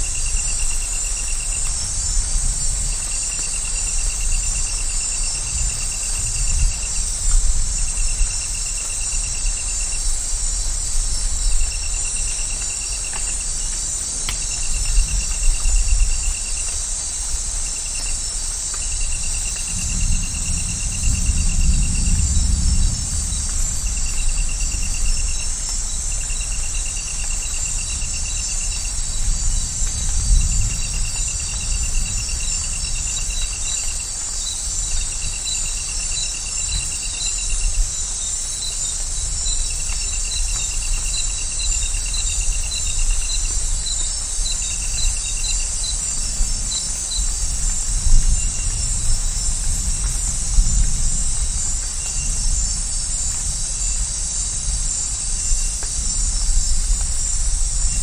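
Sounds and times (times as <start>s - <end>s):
insects buzzing: 0.0s - 58.0s
distant thunder rumbling: 19.1s - 33.6s.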